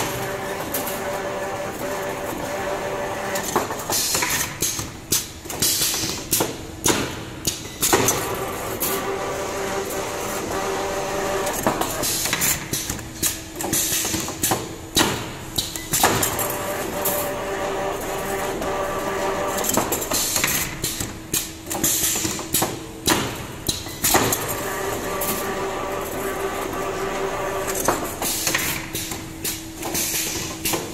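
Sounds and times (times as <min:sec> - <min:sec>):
machine hum: 0:00.0 - 0:03.9, 0:08.2 - 0:12.2, 0:16.2 - 0:20.4, 0:24.2 - 0:29.4.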